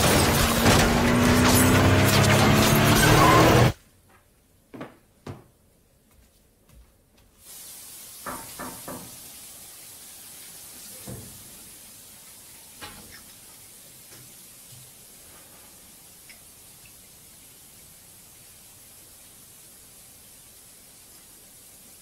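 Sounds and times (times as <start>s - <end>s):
soft knocks and thumps: 4.7s - 5.5s
steady hiss: 7.3s - 22.0s.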